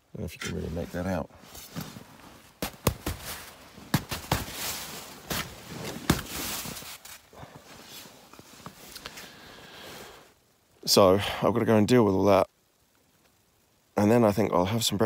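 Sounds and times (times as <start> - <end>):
snow sliding on fabric: 0.4 - 10.4
dull knocks on tent fabric: 2.6 - 6.9.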